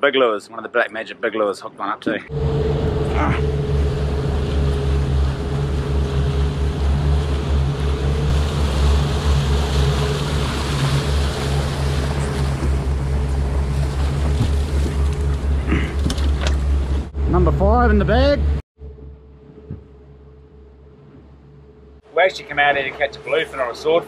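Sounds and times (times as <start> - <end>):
wind: 0.0 - 24.0
wake water rushing: 2.3 - 18.4, 22.1 - 24.0
outboard motors droning: 2.3 - 24.0.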